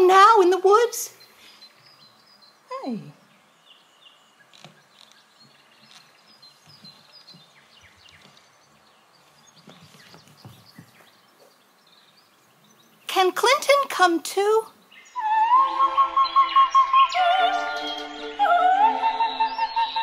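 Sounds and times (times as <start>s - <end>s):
low background hiss: 0.0s - 19.9s
high bird chirps: 14.9s - 20.0s.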